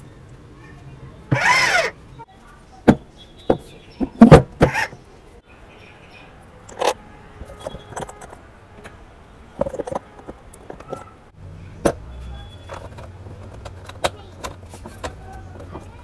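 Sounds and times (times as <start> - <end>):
hands handling plastic toy wheel: 6.6 - 11.2, 11.8 - 16.0.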